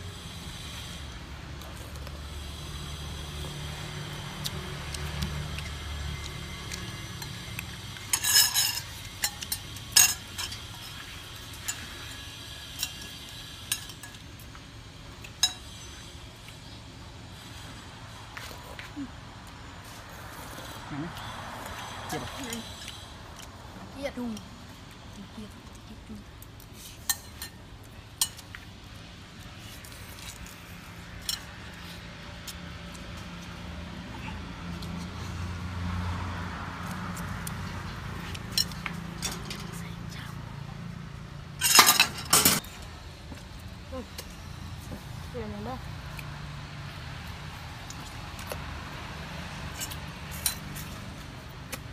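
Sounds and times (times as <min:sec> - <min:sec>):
spoons clinking on plates: 0:08.0 - 0:12.0, 0:12.7 - 0:14.3, 0:15.3 - 0:16.0, 0:27.0 - 0:27.6, 0:41.6 - 0:42.6.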